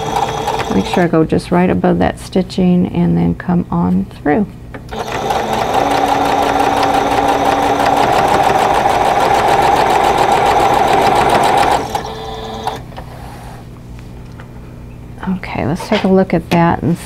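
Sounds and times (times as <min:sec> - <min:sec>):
electric sewing machine running: 0:00.0 - 0:01.1, 0:04.9 - 0:12.9.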